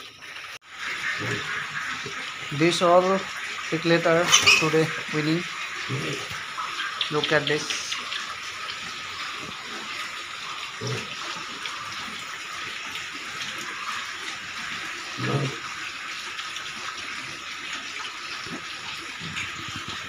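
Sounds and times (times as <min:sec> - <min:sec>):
piglets feeding rushing noise: 0:00.8 - 0:20.0
pig grunts: 0:01.2 - 0:01.6, 0:04.2 - 0:04.9, 0:05.8 - 0:06.4, 0:10.8 - 0:11.4, 0:15.2 - 0:15.7.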